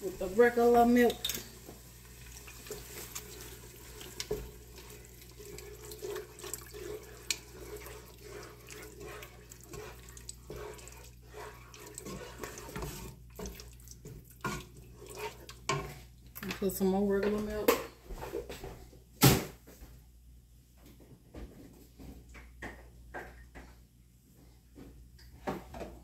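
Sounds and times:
wooden spoon stirring: 0.0 - 17.7
milk pouring into soup: 2.2 - 15.6.

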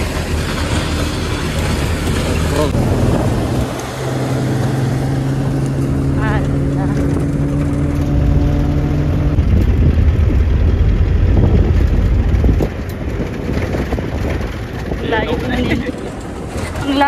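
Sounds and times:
off-road vehicle engine running: 0.0 - 17.0
uneven low rumble of vehicle: 0.0 - 17.0.

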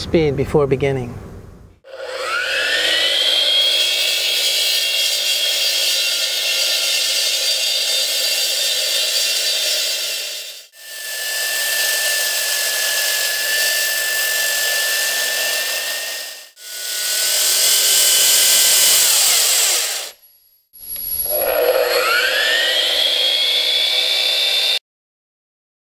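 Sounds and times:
concrete saw motor whine: 1.8 - 24.8
gritty concrete cutting noise: 1.9 - 20.2, 21.2 - 24.8.

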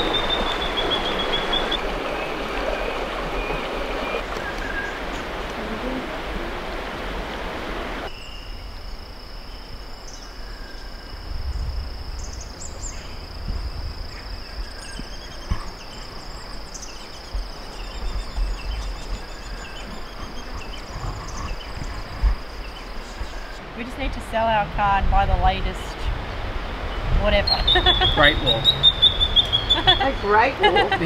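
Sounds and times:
creek water running: 0.0 - 8.1, 14.3 - 31.0
faint bird chirps: 27.4 - 30.5.

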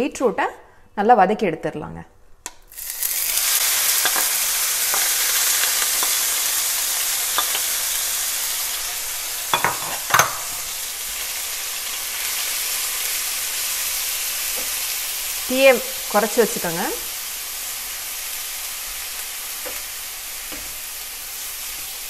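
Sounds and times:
beetroot sizzling in a frying pan: 2.7 - 22.0.

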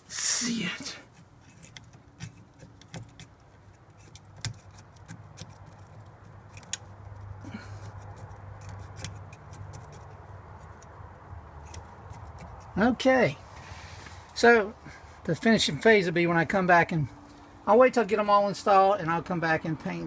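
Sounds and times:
sculpting tool clicks and taps: 1.6 - 7.2.

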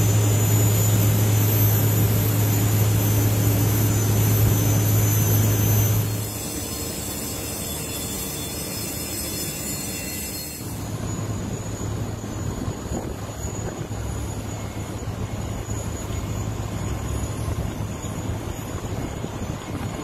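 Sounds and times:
low hum: 0.0 - 6.4
jet engine rushing: 0.0 - 7.0
thin high whine: 0.0 - 20.0.

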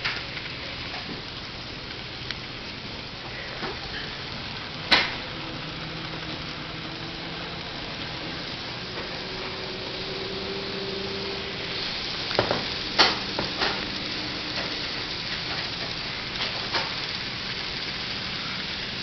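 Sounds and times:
faint motor hum: 0.0 - 19.0
model train wheels hissing on track: 0.0 - 19.0.

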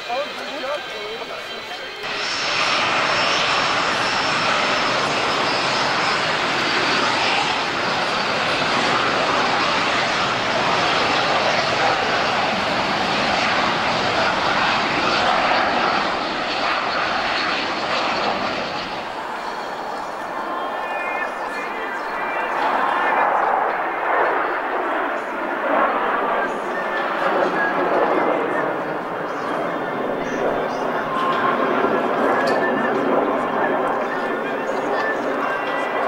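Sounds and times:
high turbine whine: 0.0 - 36.0
jet engine roar: 0.0 - 36.0.

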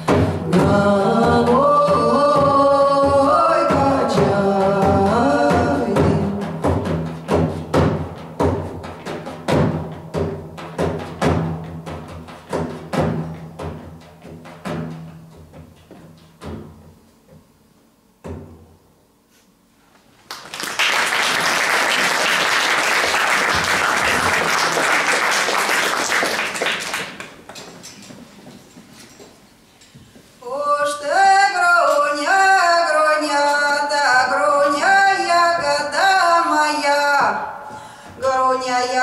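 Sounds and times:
frame drum strokes: 0.0 - 19.6
audience applauding: 20.2 - 27.5.

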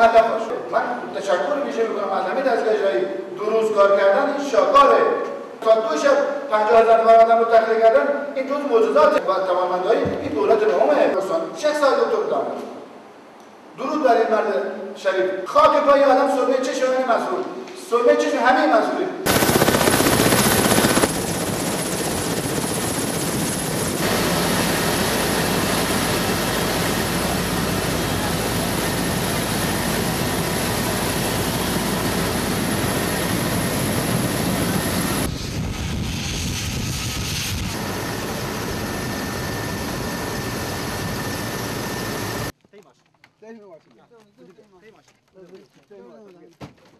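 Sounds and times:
helicopter rotor and turbine noise: 19.3 - 42.5.

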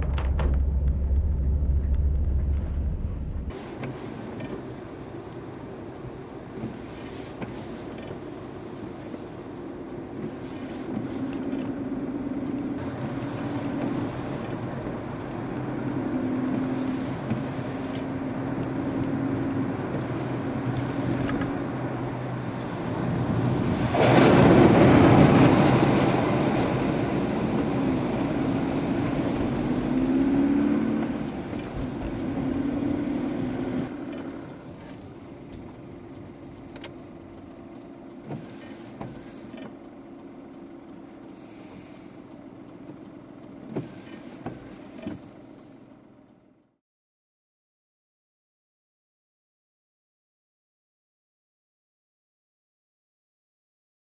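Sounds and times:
loud rush of noise: 0.0 - 3.5
car engine: 0.0 - 46.6
tyres hissing on wet road: 3.5 - 4.8, 6.6 - 8.0, 10.2 - 11.4, 12.8 - 21.2, 21.9 - 33.8, 41.2 - 42.3.

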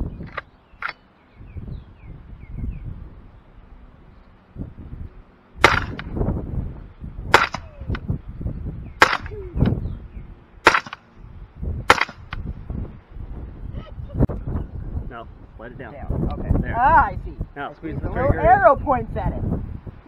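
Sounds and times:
suppressed rifle shots: 5.6 - 6.1, 7.3 - 7.8, 9.0 - 9.4, 10.6 - 11.0, 11.9 - 12.4.

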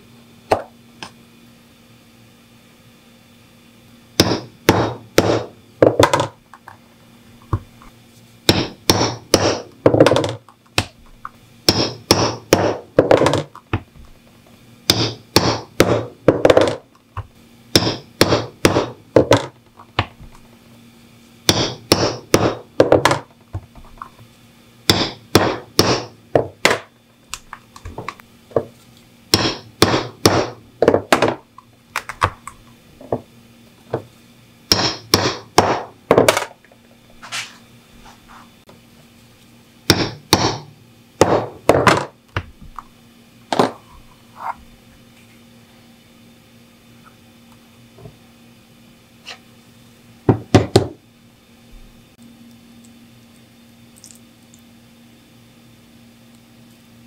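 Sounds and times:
mallet striking leather punch: 4.2 - 6.3, 8.5 - 10.9, 11.7 - 13.8, 14.9 - 16.8, 17.8 - 19.5, 21.5 - 23.2, 24.9 - 26.9, 29.3 - 31.4, 34.7 - 36.4, 39.9 - 42.1.

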